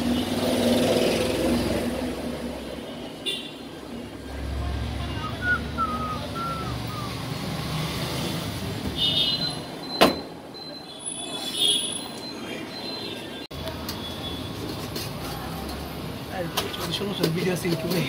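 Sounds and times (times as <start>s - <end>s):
motor vehicles passing: 0.0s - 2.9s, 3.8s - 9.7s.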